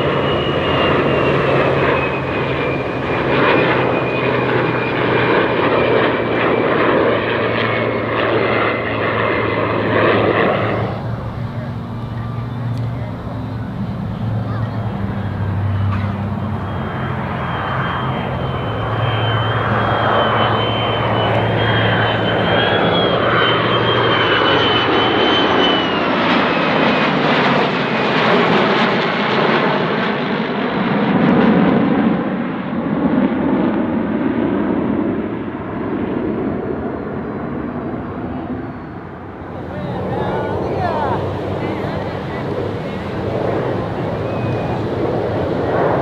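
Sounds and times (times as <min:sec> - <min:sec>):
low hum: 0:00.0 - 0:25.2
high whine: 0:00.0 - 0:26.5, 0:38.1 - 0:46.0
jet roar: 0:00.0 - 0:46.0.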